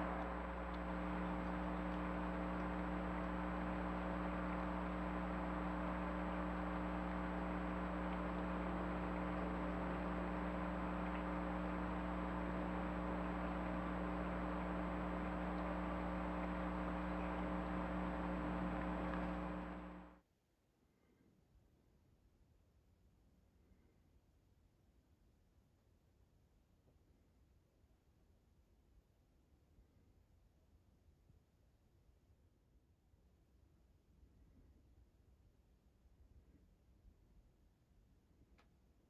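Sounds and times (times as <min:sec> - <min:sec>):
steady hiss: 0:00.0 - 0:20.1
electrical hum: 0:00.0 - 0:20.2.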